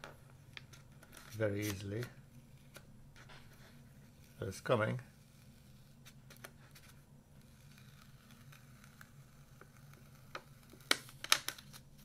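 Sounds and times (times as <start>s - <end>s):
faint low hum: 0.0s - 12.0s
tape peeling off paper: 5.2s - 12.0s.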